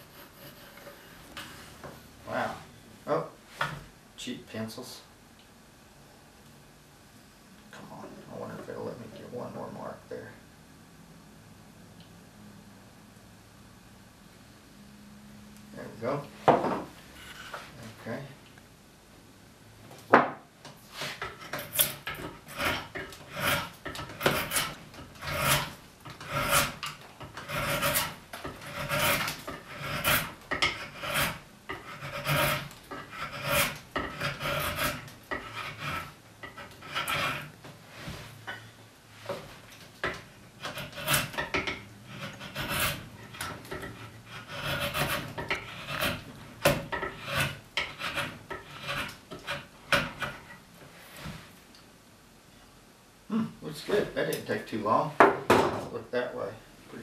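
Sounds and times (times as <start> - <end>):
spokeshave rasping on wood: 21.0 - 37.6, 40.0 - 50.6.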